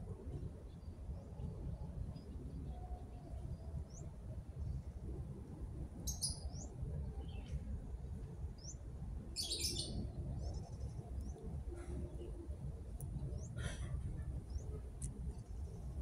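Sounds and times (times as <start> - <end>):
steady low rumble: 0.0 - 16.0
small birds chirping: 6.0 - 7.6, 9.4 - 12.4.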